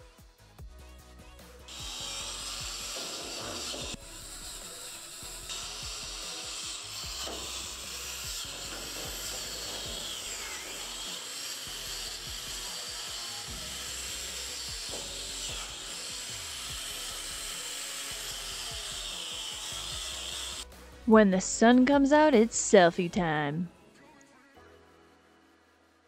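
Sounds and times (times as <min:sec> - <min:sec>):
power tool grinding steel: 0:01.6 - 0:20.7.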